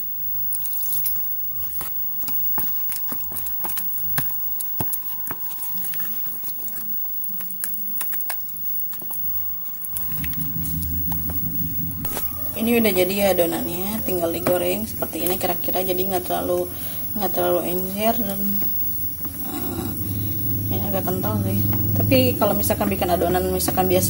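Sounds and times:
low steady hum: 0:00.0 - 0:24.0
spatula stirring thick batter: 0:00.5 - 0:10.9.

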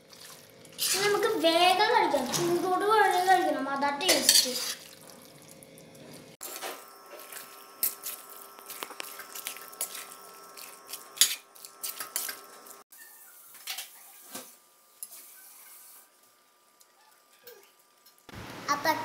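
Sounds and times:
metal spoon scraping a pan: 0:00.8 - 0:01.3, 0:04.1 - 0:04.8, 0:09.8 - 0:12.6.

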